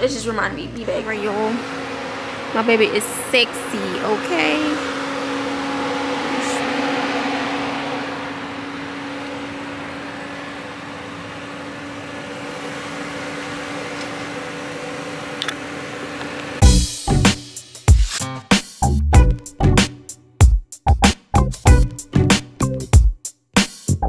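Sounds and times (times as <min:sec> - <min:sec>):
mechanical hum: 0:00.0 - 0:16.6.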